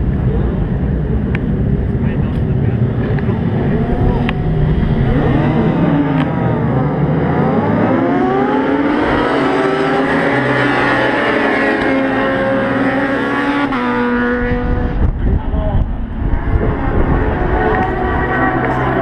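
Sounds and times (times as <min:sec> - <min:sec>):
motorcycles accelerating past: 0:03.2 - 0:15.1, 0:16.2 - 0:19.0.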